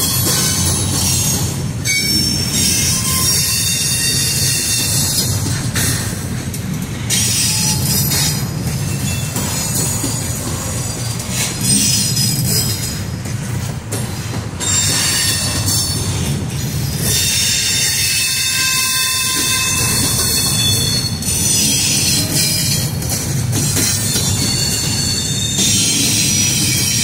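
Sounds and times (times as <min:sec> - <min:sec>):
wheels rumbling on rail: 0:00.0 - 0:27.0
wheel squeal and hiss: 0:01.9 - 0:05.1, 0:07.2 - 0:09.7, 0:17.1 - 0:22.7.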